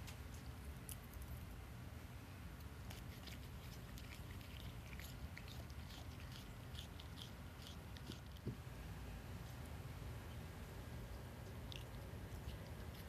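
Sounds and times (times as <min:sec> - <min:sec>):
cat chewing grass: 0:00.3 - 0:01.6, 0:02.4 - 0:08.6, 0:09.4 - 0:13.0.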